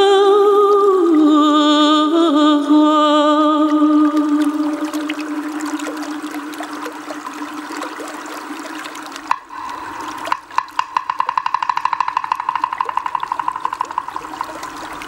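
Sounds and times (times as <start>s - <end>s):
watery rushing hiss: 3.4s - 15.0s.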